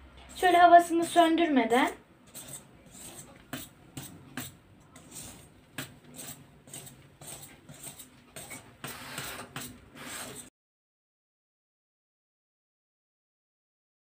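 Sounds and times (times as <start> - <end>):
utensil scraping metal bowl: 0.2 - 10.5.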